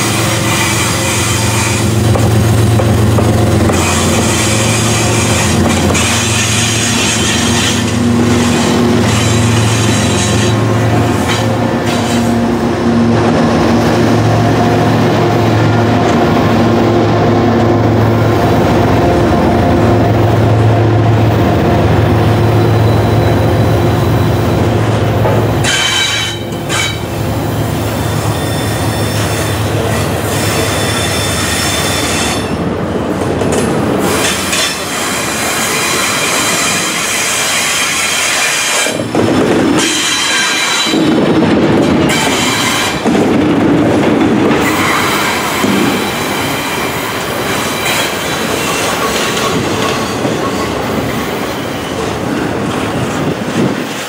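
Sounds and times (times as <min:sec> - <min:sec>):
train wheels rumbling and clacking: 0:00.0 - 0:54.0
high-pitched wheel squeal: 0:28.0 - 0:29.7.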